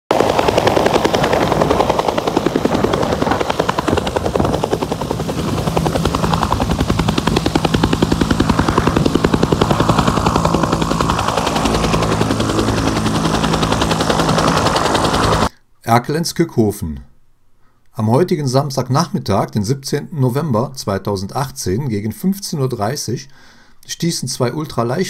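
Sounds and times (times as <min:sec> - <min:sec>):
helicopter engine drone: 0:00.1 - 0:15.5
helicopter rotor chopping: 0:00.1 - 0:15.5.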